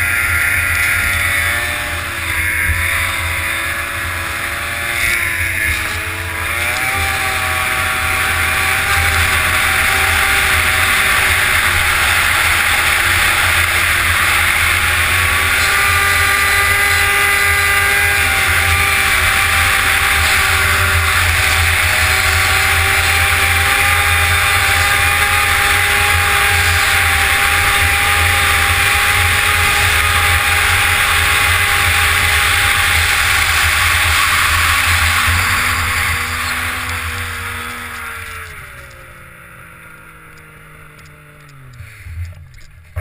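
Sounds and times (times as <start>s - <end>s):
snowmobile engine running: 0.0s - 43.0s.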